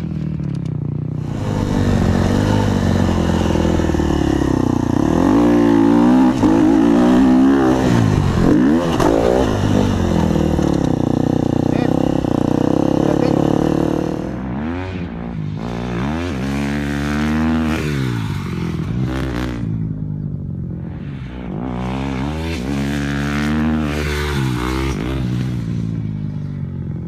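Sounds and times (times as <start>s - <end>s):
motocross bike engine revving: 1.1s - 20.0s, 21.0s - 26.1s.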